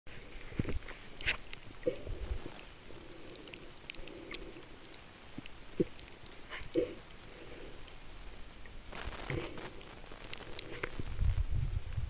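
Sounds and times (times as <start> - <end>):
faint underwater clicks: 0.4 - 8.0.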